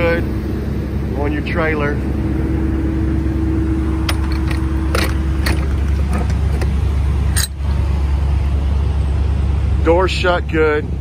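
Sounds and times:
refrigeration unit droning: 0.0s - 11.0s
door shutting clunk: 4.0s - 6.8s.

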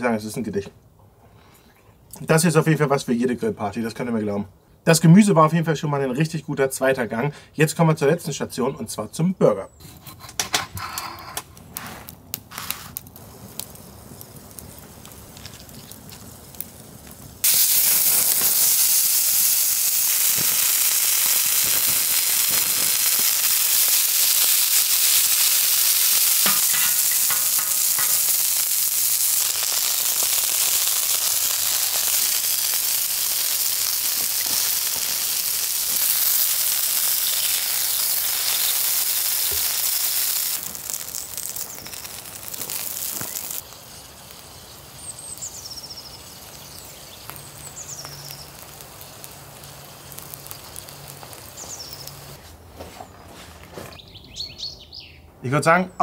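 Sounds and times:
patties sizzling on griddle: 10.8s - 52.4s.

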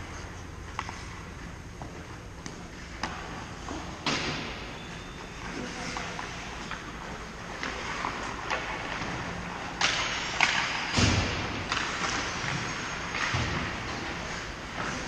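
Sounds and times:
indoor rink background noise: 0.0s - 15.0s
hockey sticks and puck knocking: 0.7s - 4.6s, 6.0s - 15.0s
puck thudding against boards: 1.8s - 4.6s.

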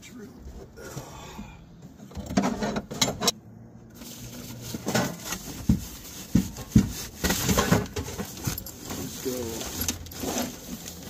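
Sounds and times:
bags rustling: 4.0s - 11.0s.

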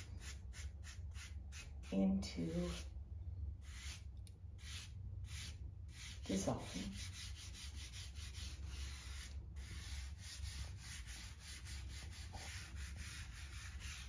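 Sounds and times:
pastel scratching on paper: 4.6s - 14.0s.

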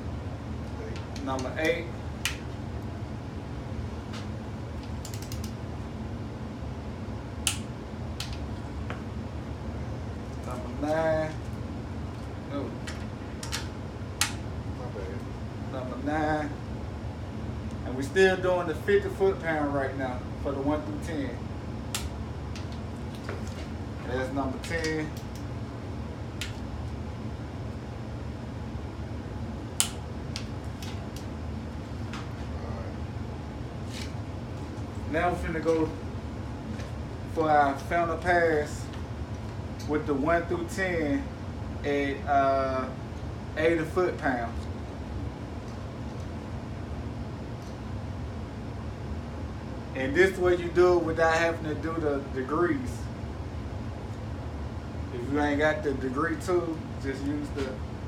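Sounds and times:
low room hum: 0.0s - 58.0s
light ratcheting clicks: 4.8s - 5.6s.

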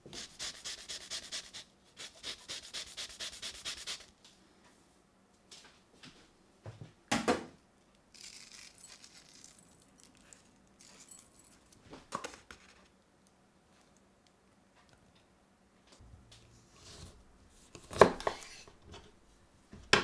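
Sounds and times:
soft rustling and sprinkling: 8.1s - 14.4s.

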